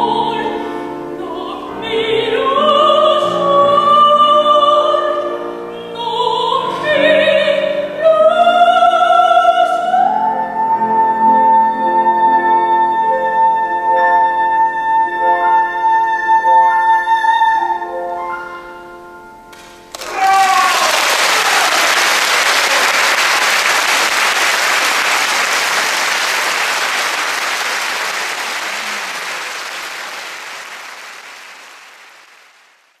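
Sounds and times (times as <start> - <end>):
audience applause: 19.6 - 33.0
shouted cheer: 20.0 - 30.4.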